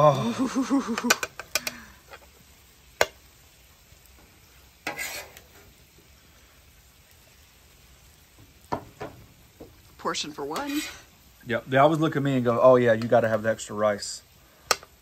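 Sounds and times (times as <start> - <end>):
food sizzling on a griddle: 0.0 - 15.0
brief scrape: 4.8 - 5.4.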